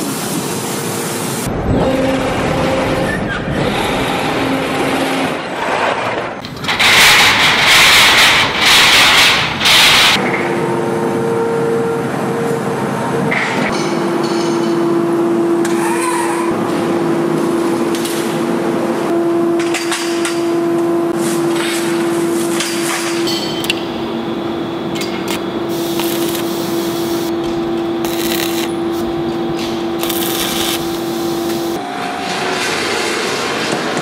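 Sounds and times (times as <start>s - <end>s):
machine hum: 20.4s - 33.2s
different machine sound: 23.2s - 32.4s
arc welding torch hissing: 25.2s - 27.4s, 28.0s - 31.8s.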